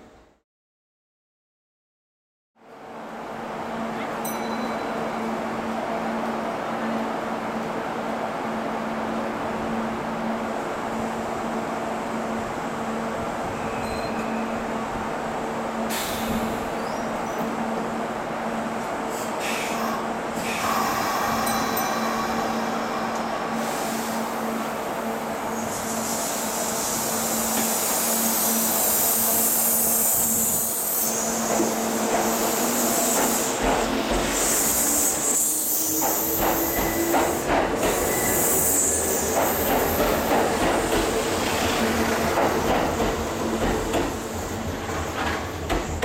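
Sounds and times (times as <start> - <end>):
train wheels clicking over rail joints: 33.0 - 34.6, 35.9 - 38.2, 39.2 - 46.0.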